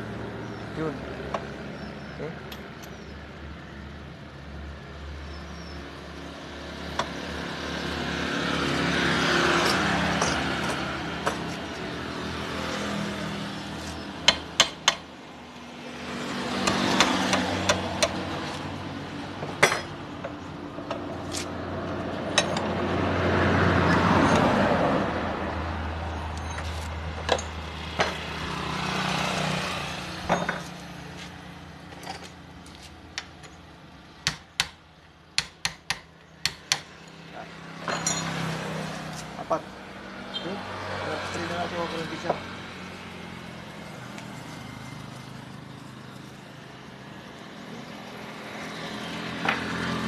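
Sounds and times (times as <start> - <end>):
hand tools tapping metal: 37.8 - 38.5.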